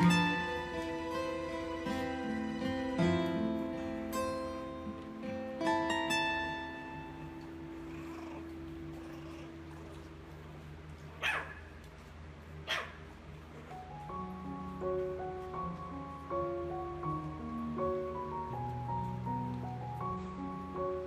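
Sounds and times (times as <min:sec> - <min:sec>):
background music: 0:00.0 - 0:09.9, 0:13.5 - 0:21.0
dog yips: 0:11.2 - 0:11.7, 0:12.6 - 0:13.0.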